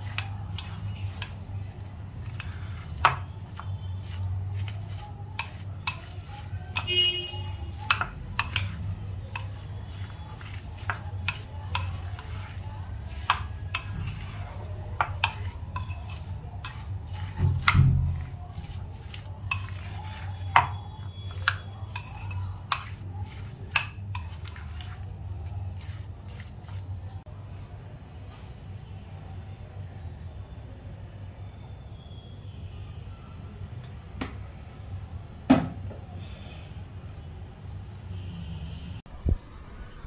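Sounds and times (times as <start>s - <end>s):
spoon stirring in a bowl: 0.0s - 27.3s
spoon clinking against bowl: 2.2s - 6.9s, 7.6s - 14.3s, 15.0s - 25.0s.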